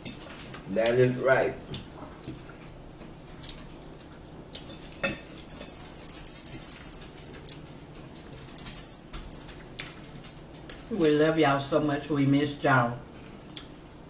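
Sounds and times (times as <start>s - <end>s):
chewing: 1.7s - 6.0s.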